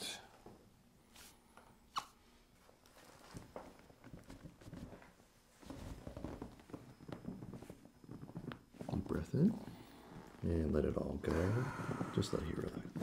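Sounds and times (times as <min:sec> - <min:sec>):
rustling on padded table: 0:02.6 - 0:10.4.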